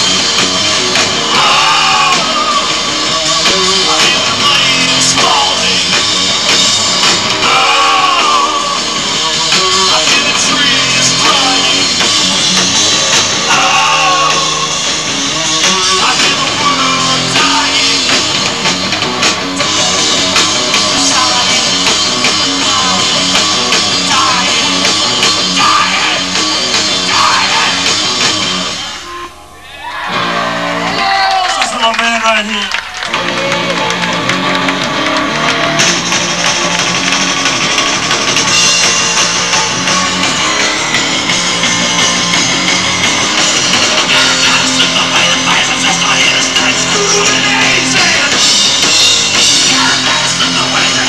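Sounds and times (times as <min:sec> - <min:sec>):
electric guitars: 0:00.0 - 0:51.0
rock band playing: 0:00.0 - 0:51.0
person singing: 0:01.2 - 0:06.0, 0:07.4 - 0:12.1, 0:13.4 - 0:14.9, 0:15.6 - 0:18.3, 0:20.8 - 0:28.0, 0:44.0 - 0:48.5, 0:49.3 - 0:51.0.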